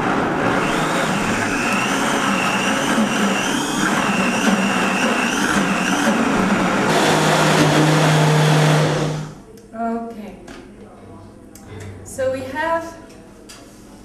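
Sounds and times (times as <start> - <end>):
blender motor whine: 0.0 - 9.4.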